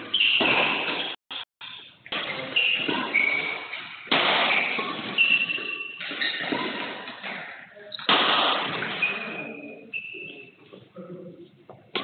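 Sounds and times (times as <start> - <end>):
shoe squeaks: 2.2 - 3.9, 4.6 - 6.8, 8.9 - 10.6.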